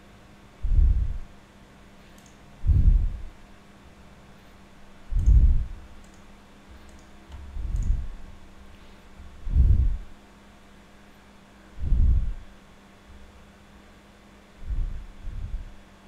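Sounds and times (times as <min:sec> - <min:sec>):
low muffled thumps: 0:00.6 - 0:01.2, 0:02.6 - 0:03.3, 0:05.1 - 0:05.8, 0:09.3 - 0:10.1, 0:11.8 - 0:12.4, 0:14.6 - 0:15.7
faint computer mouse clicks: 0:02.0 - 0:02.4, 0:06.0 - 0:08.0.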